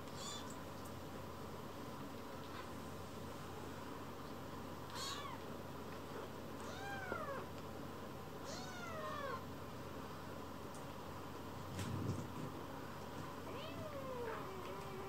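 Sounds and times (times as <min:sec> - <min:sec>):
kitten mewing: 0:04.9 - 0:05.4.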